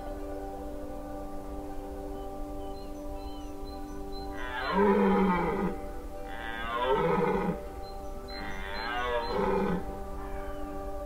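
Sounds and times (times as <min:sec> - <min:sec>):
droning music: 0:00.0 - 0:11.0
deer calling: 0:04.3 - 0:09.9.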